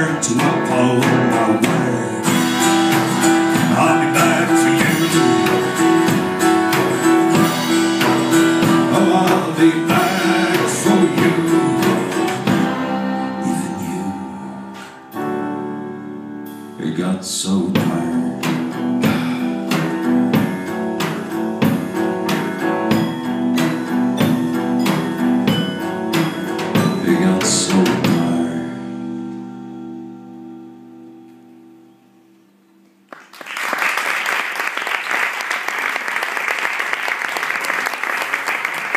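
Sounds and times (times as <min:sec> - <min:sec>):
acoustic guitar strummed: 0:00.0 - 0:33.0
audience applause: 0:33.1 - 0:38.9.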